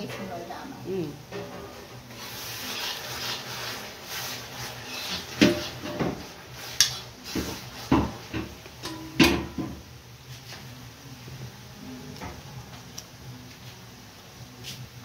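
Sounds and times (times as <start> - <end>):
ladle scraping paste in a wok: 2.0 - 8.2
ladle knocking against a wok: 5.3 - 6.3, 7.3 - 9.9.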